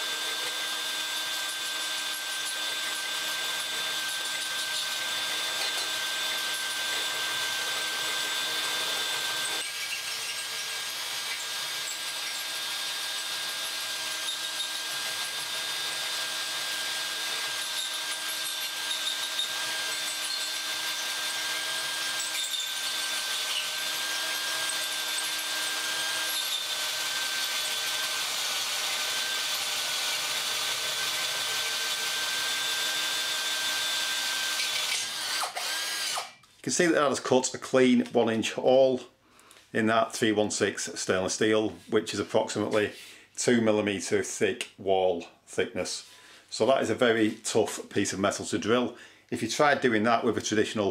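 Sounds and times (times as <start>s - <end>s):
drill cutting steel with high whine: 0.0s - 36.4s.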